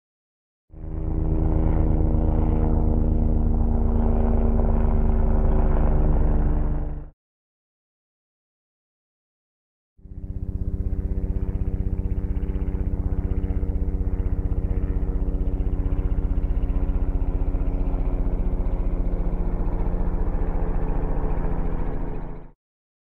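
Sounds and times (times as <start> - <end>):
helicopter rotor thumping: 0.8 - 7.1, 10.1 - 22.5
low drone with held tones: 0.8 - 7.1.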